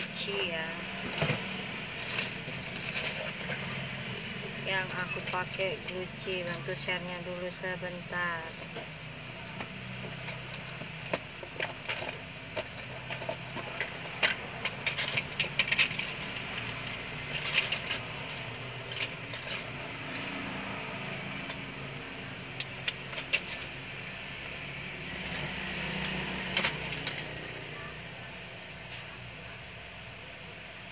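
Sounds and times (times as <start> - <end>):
paper parcel clicks and rustles: 1.0 - 4.0, 9.9 - 20.8, 21.4 - 27.7.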